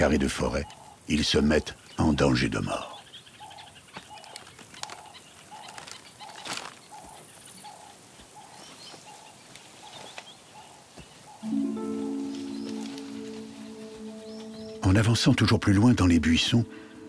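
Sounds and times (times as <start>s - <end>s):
bird hooting: 10.6s - 15.4s.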